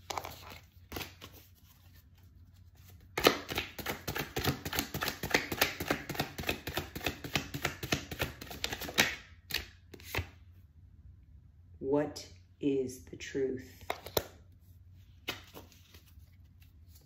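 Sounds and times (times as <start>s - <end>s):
cards being shuffled by hand: 0.0s - 10.4s, 13.8s - 17.0s
card snaps: 13.8s - 14.4s.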